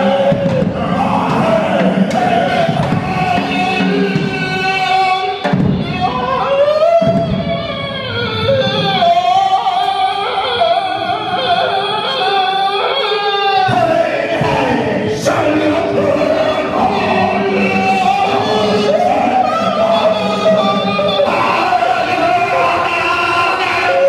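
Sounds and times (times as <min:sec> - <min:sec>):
man singing into microphone: 0:00.0 - 0:07.7, 0:08.5 - 0:24.0
drums playing: 0:00.0 - 0:08.0, 0:13.7 - 0:24.0.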